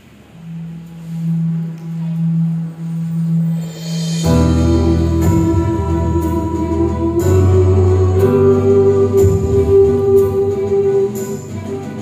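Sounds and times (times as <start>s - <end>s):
instrumental accompaniment: 0.0s - 12.0s
low bass line: 0.4s - 12.0s
mixed group singing in harmony: 4.2s - 12.0s.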